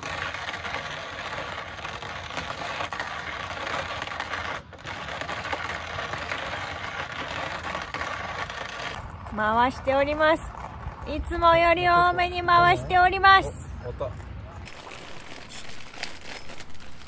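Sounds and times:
coffee grinder crunching beans: 0:14.6 - 0:17.0.

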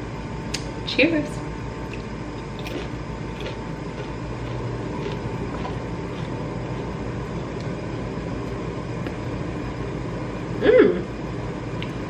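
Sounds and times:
low rumbling hum: 0:00.0 - 0:12.0
seed cracker being chewed: 0:01.9 - 0:07.8.

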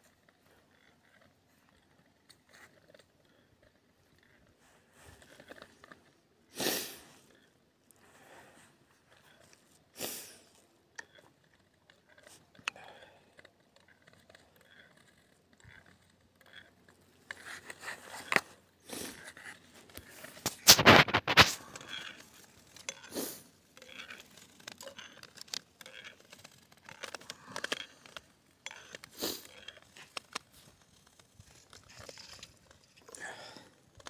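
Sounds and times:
ice skates scraping on ice: 0:17.0 - 0:33.1.

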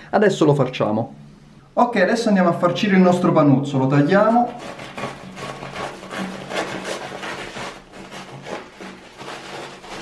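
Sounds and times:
knife sawing through crust: 0:04.2 - 0:10.0.

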